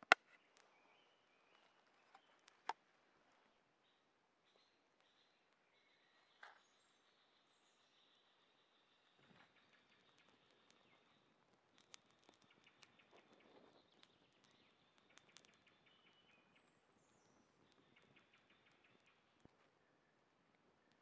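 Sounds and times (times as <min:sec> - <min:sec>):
small clicks: 0:10.0 - 0:15.8.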